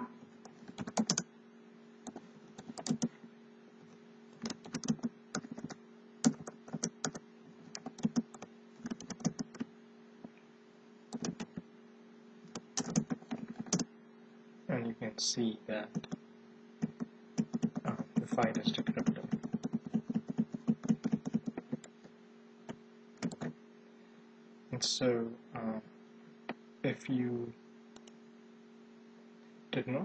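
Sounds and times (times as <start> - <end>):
faint steady hum: 0.0 - 30.0
keyboard typing: 0.7 - 1.2, 2.1 - 3.1, 4.4 - 9.6, 11.1 - 11.6, 12.5 - 13.9, 15.9 - 16.2, 16.8 - 22.0, 23.2 - 23.5.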